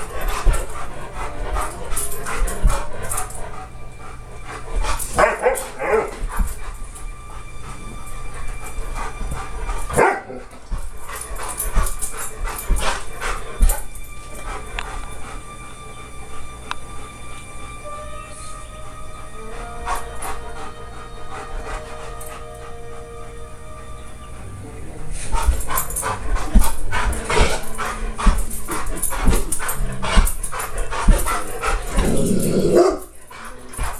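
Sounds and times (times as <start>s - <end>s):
dog barking: 5.1s - 6.5s, 9.9s - 10.5s, 31.1s - 33.2s.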